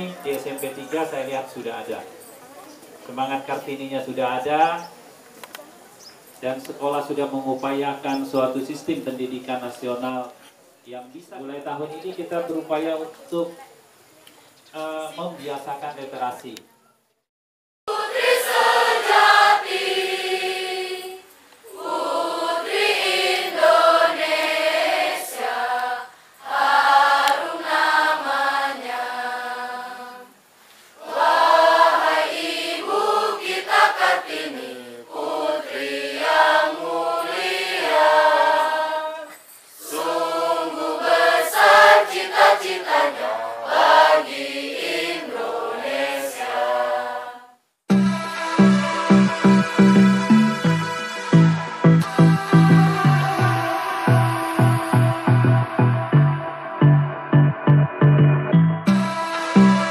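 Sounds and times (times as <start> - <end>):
students choir singing: 17.9 - 30.4, 31.0 - 47.6, 52.0 - 57.3.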